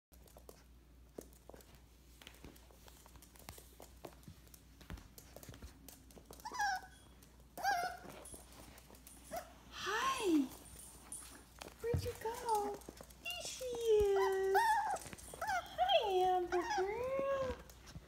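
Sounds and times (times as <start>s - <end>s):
claws clicking on hard floor: 0.1s - 9.5s, 10.4s - 18.0s
puppy whining yips: 6.4s - 8.3s, 14.2s - 15.8s.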